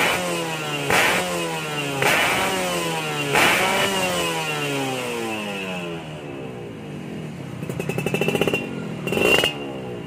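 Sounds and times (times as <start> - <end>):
two-stroke engine revving: 0.0 - 6.1, 7.6 - 10.0.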